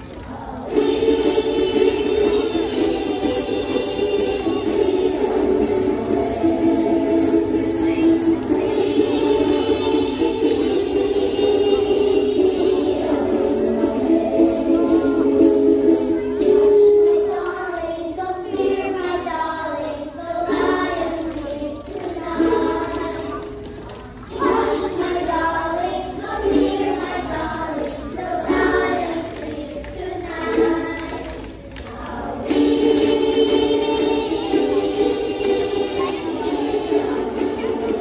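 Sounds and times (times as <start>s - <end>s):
children singing together: 0.0s - 38.0s.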